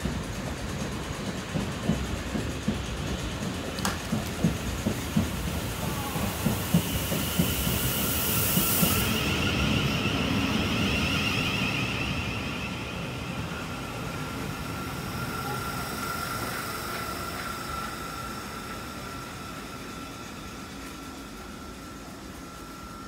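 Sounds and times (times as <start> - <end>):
train wheels clicking over rail joints: 0.0 - 9.2, 14.3 - 22.9
high electric whine of train: 0.0 - 23.0.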